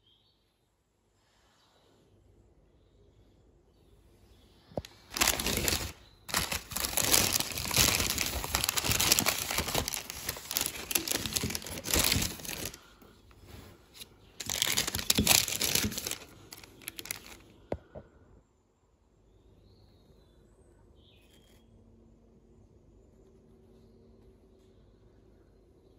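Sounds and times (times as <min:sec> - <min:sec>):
paper bag crinkling: 0:04.8 - 0:17.5.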